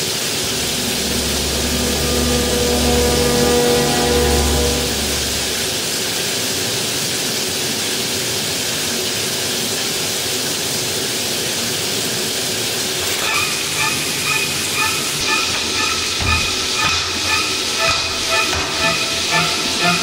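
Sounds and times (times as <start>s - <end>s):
held musical chord: 0.0s - 6.2s, 13.0s - 20.0s
shower running: 0.0s - 20.0s.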